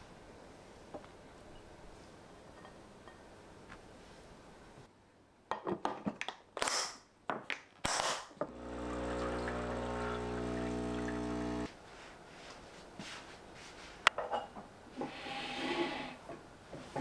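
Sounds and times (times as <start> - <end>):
appliance electric hum: 8.4 - 11.8.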